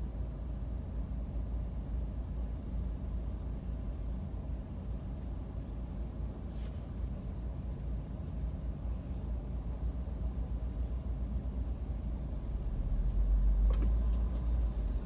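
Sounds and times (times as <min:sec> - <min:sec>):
surrounding traffic: 0:00.0 - 0:15.0.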